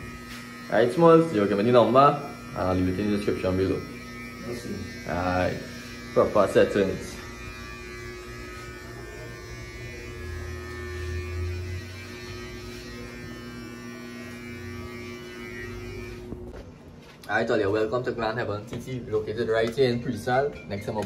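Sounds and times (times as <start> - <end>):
electric hair trimmer buzzing: 0.0 - 16.5.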